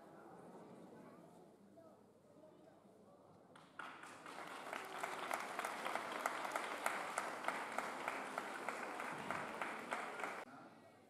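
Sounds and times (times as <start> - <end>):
crowd applauding: 3.6 - 10.5.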